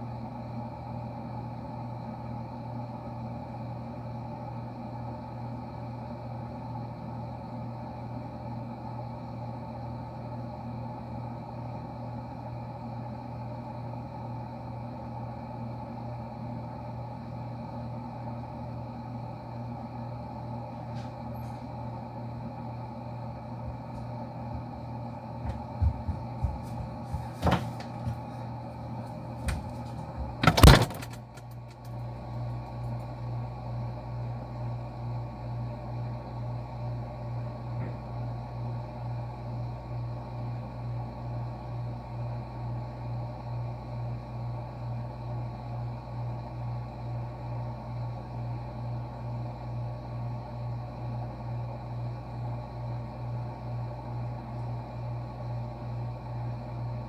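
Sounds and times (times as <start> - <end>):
fridge humming: 20.2 - 34.2
refrigerator door shutting: 27.3 - 28.2, 29.4 - 31.6
knocks and clatters: 29.5 - 31.8.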